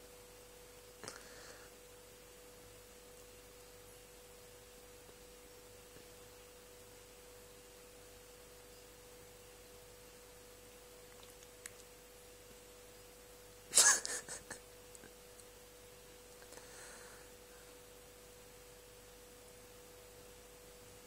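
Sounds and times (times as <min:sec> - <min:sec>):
faint steady hum: 0:00.0 - 0:21.0.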